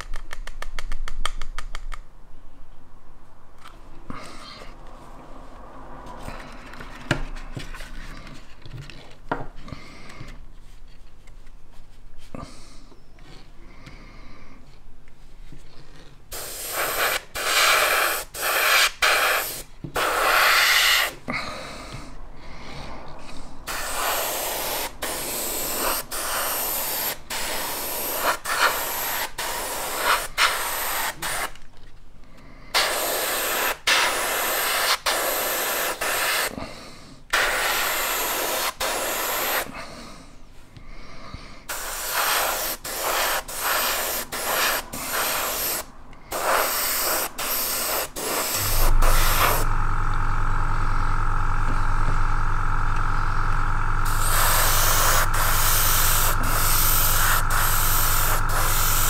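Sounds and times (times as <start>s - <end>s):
airbrush air hiss: 16.3s - 21.3s, 22.7s - 31.5s, 32.7s - 36.6s, 37.3s - 39.7s, 41.7s - 49.8s, 54.0s - 59.0s.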